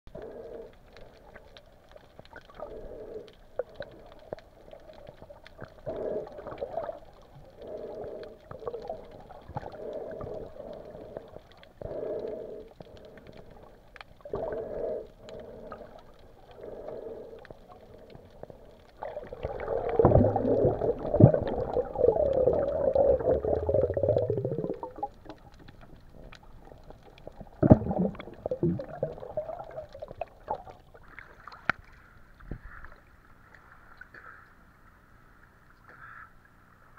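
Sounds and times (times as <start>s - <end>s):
muffled underwater hum: 0.1s - 36.9s
water gurgling: 1.1s - 34.2s
rough water churning: 17.9s - 32.7s.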